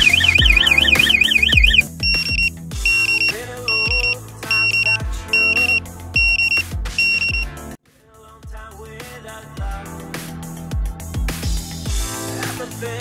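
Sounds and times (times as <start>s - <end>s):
pager chirping beeps: 0.0s - 7.5s
background music with beat: 0.0s - 13.0s.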